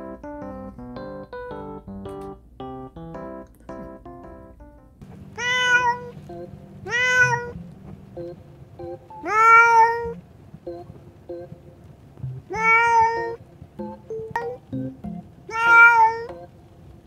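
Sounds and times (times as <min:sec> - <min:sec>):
soft piano music: 0:00.0 - 0:17.0
cat meowing loudly: 0:05.4 - 0:06.1, 0:06.9 - 0:07.6, 0:09.2 - 0:10.2, 0:12.5 - 0:13.4, 0:15.5 - 0:16.3.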